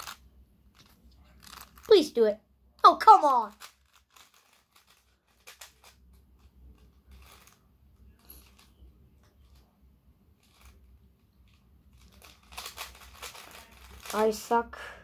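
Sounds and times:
puzzle cube clicking: 3.1 - 6.2, 6.8 - 7.6, 11.9 - 14.2.

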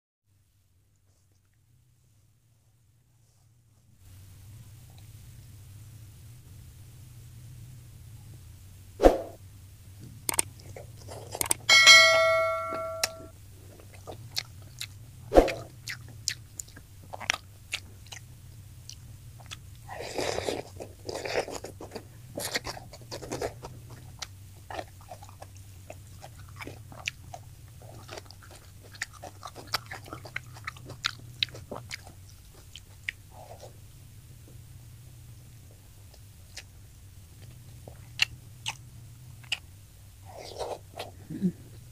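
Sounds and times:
crunching and chewing food: 0.9 - 8.6, 9.9 - 11.7, 13.3 - 41.9
ringing metallic clink: 11.7 - 13.3.

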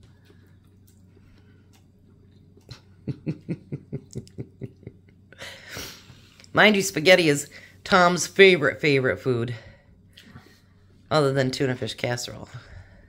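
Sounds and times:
man chewing noodles: 0.0 - 5.3.

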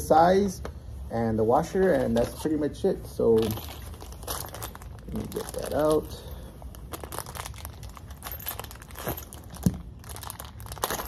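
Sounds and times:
plastic bag crinkling: 3.2 - 11.0.

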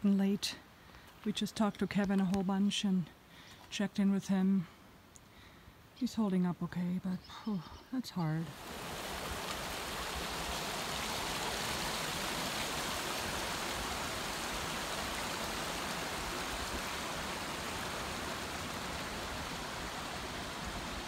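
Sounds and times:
creek rushing over boulders: 8.4 - 21.0.

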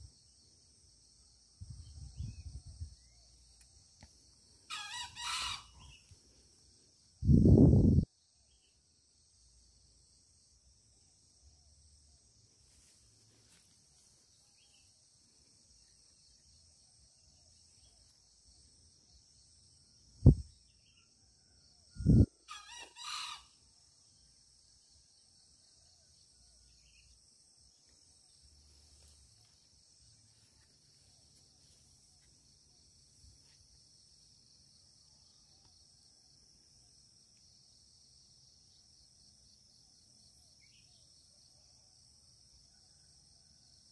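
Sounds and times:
high insect drone: 0.0 - 43.9
junglefowl crowing: 4.7 - 6.1, 22.4 - 23.6.

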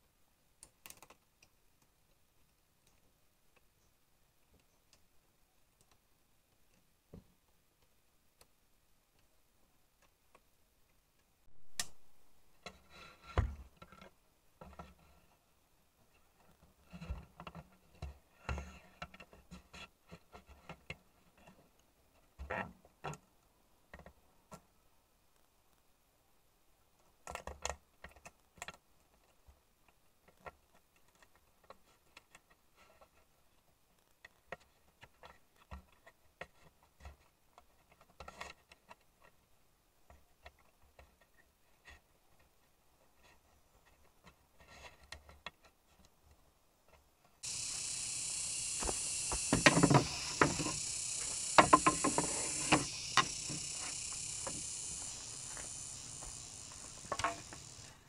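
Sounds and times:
high insect chorus: 47.4 - 58.0.

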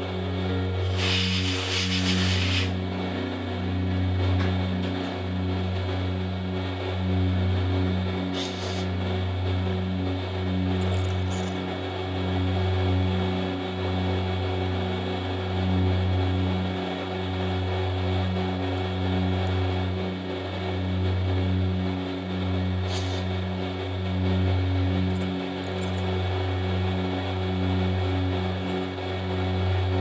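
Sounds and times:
brief high hiss: 0.8 - 2.8, 8.4 - 8.9
milling machine cutting steel: 0.8 - 2.8, 8.4 - 8.9.

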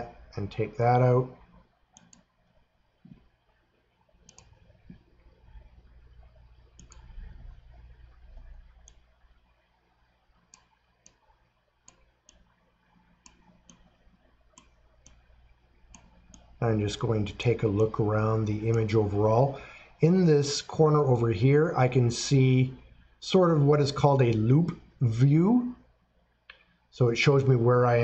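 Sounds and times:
low steady hum: 0.0 - 28.0
computer mouse clicks: 1.4 - 3.2, 4.2 - 9.2, 10.4 - 16.6.

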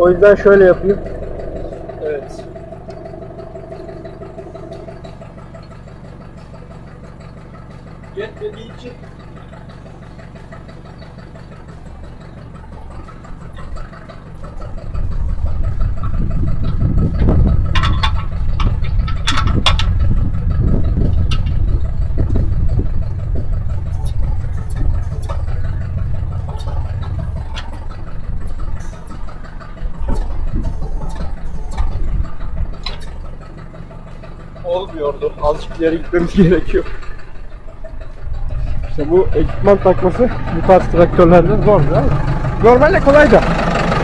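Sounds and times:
tractor diesel engine rumble: 0.0 - 44.0
sharp metal clanks: 23.1 - 33.5.

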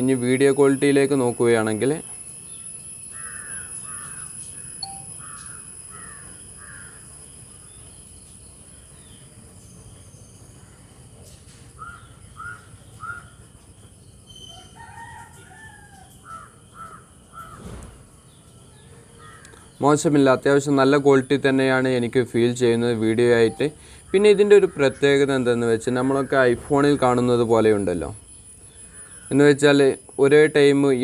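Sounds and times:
birds making harsh falling calls: 0.0 - 9.4, 11.7 - 21.8, 23.4 - 31.0
faint steady high whine: 0.0 - 11.4, 18.3 - 31.0.

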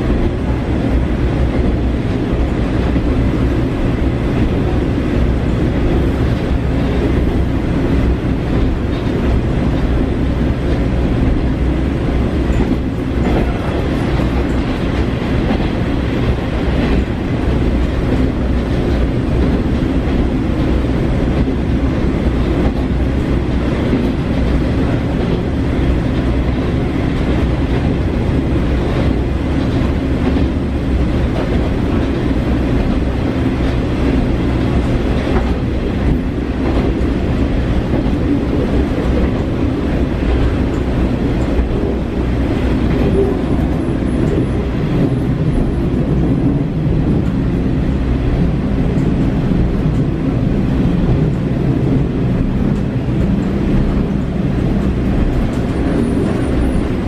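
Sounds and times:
railcar engine and wheels drone: 0.0 - 57.0.

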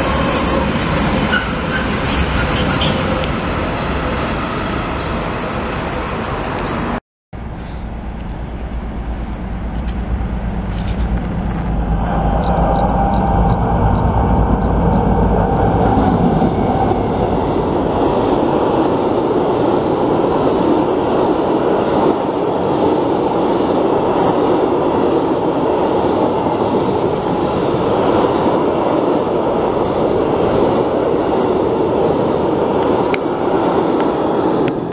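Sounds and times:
low drone: 7.4 - 19.9.

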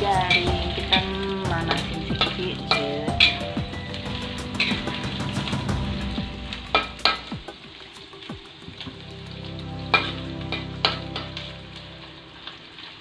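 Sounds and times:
chicken sizzling in hot oil: 0.0 - 13.0.

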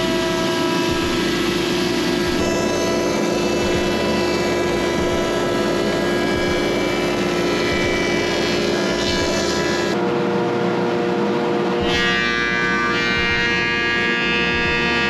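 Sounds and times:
planer molder milling a board: 0.0 - 10.0.

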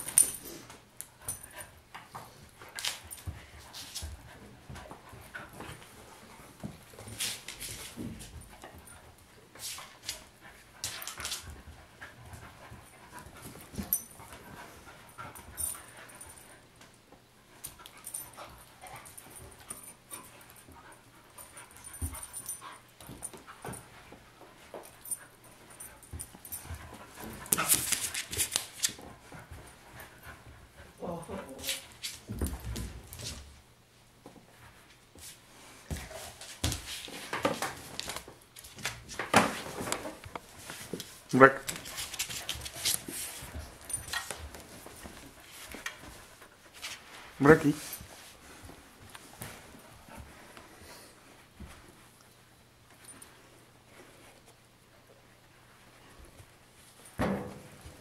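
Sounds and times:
dogs scuffling on a rug: 0.0 - 58.0
dogs panting: 9.9 - 16.7, 17.5 - 31.5.

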